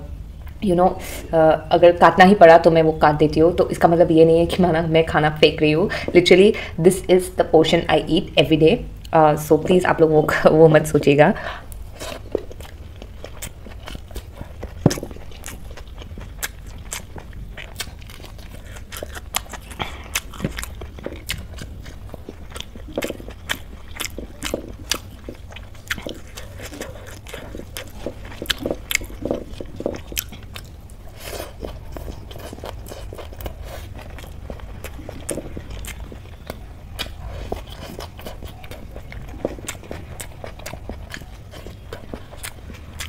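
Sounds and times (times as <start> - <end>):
low steady hum: 0.0 - 43.0
person chewing: 11.4 - 43.0.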